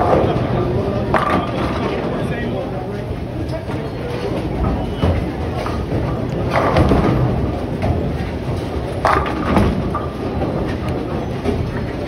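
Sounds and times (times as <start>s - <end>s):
bowling ball rolling: 3.6s - 12.0s
bowling pins crashing: 4.5s - 12.0s.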